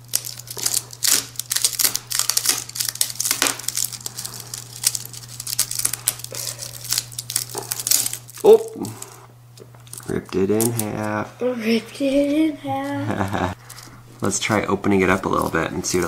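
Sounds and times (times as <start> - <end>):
knife crunching through rattle: 0.0 - 9.2.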